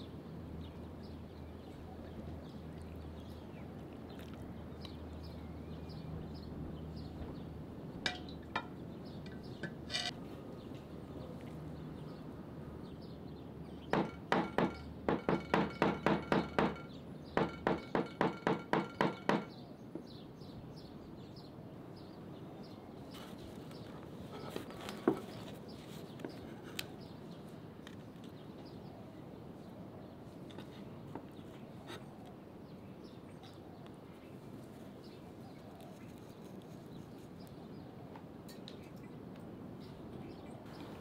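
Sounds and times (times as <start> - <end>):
sharp ringing knocks: 8.1 - 8.8, 13.9 - 19.6.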